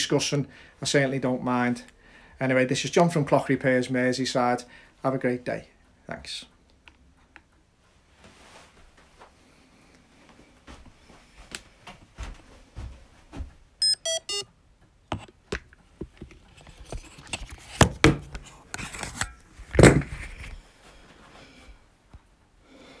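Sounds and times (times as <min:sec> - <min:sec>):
electronic beeps falling in pitch: 0:13.8 - 0:14.5.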